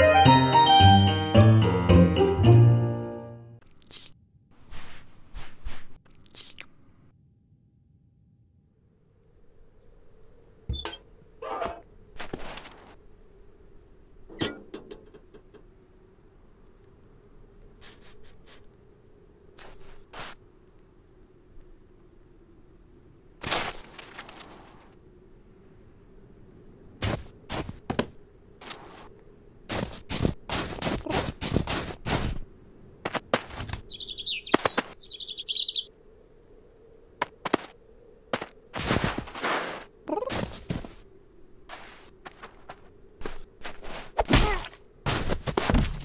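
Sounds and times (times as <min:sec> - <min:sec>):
rustling rush: 0:04.5 - 0:06.0, 0:26.9 - 0:35.5, 0:37.1 - 0:44.2
cartoon bird twittering: 0:33.9 - 0:35.9.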